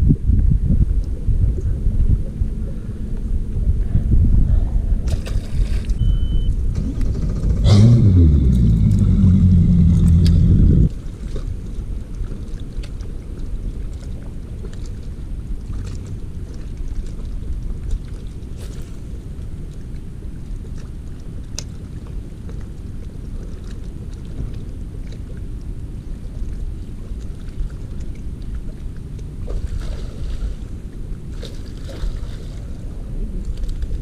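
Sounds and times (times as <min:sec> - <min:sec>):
low rumbling background noise: 0:00.0 - 0:34.0
boat motor running: 0:01.2 - 0:12.1.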